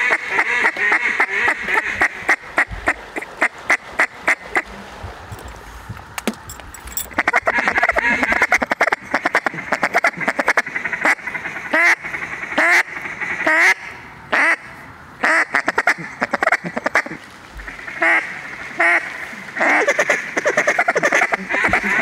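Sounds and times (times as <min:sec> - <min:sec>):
duck call quacks: 0:00.0 - 0:04.7, 0:07.2 - 0:22.0.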